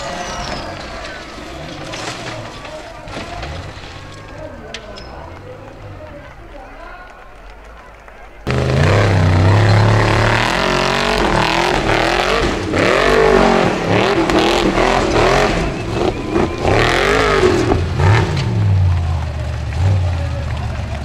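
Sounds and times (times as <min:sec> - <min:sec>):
tyres churning loose dirt: 0:00.0 - 0:06.8, 0:08.5 - 0:21.0
buggy engine revving hard: 0:08.5 - 0:21.0.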